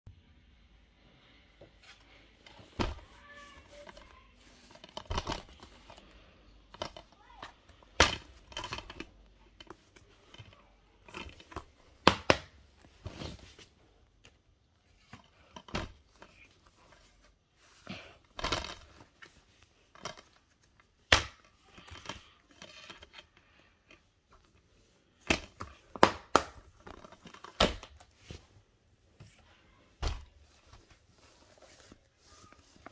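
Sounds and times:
plastic cases clicking and rustling: 3.7 - 13.6, 18.2 - 24.6, 25.2 - 28.4.

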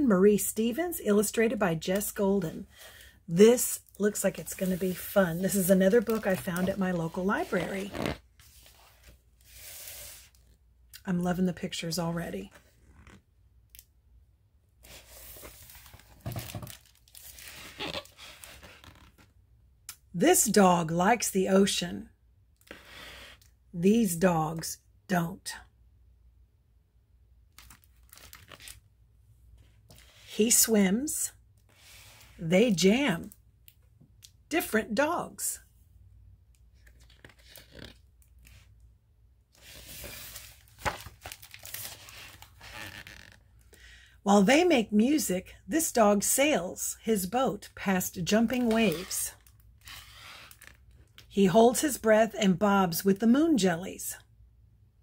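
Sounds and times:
book pages rustling: 4.4 - 10.5, 12.5 - 13.2, 14.8 - 19.3, 27.6 - 28.8, 36.7 - 38.7, 39.6 - 43.5, 48.4 - 51.0
page flapping: 39.8 - 43.4.

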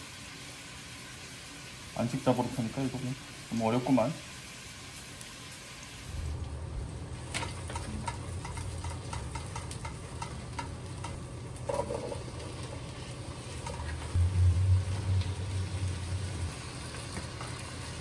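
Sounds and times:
meat and onions frying: 0.0 - 18.0
low steady hum: 13.8 - 17.0.

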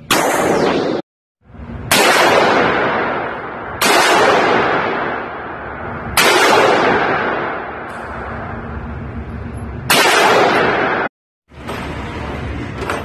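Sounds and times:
rifle shots echoing: 0.1 - 1.0, 1.9 - 8.1, 9.9 - 11.1.

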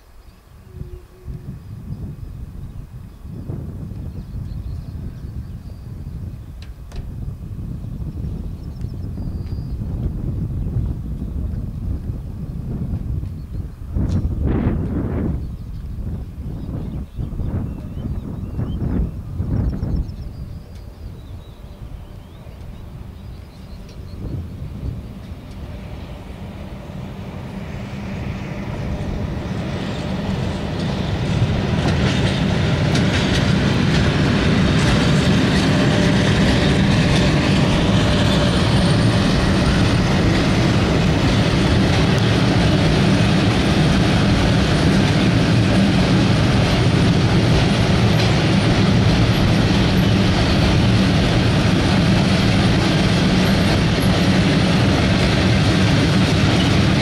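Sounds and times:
train low rumble: 0.0 - 57.0
train wheels clattering: 24.9 - 57.0.

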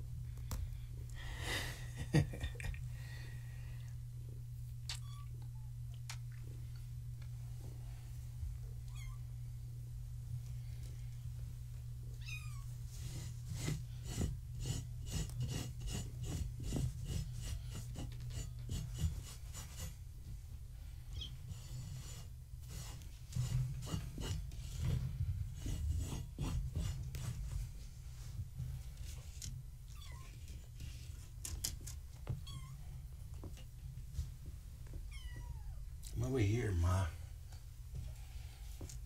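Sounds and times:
steady low hum: 0.0 - 39.0
kittens scratching and scrabbling: 12.2 - 35.4.

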